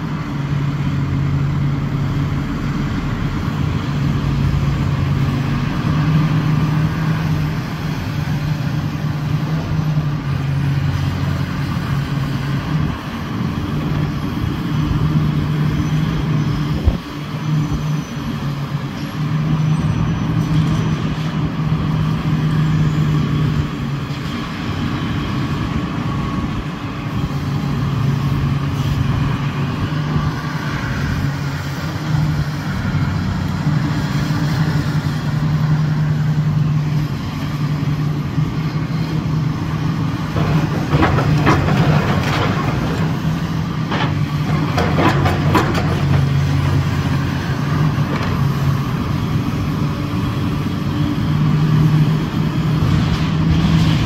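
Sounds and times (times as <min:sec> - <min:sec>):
excavator diesel engine running: 0:00.0 - 0:54.0
building material crunching and clattering: 0:40.3 - 0:47.0.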